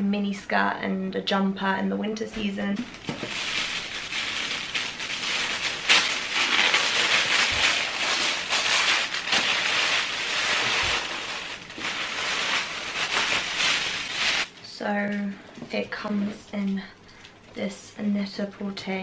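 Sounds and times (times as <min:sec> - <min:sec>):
tissue paper rustling: 0:02.8 - 0:14.6.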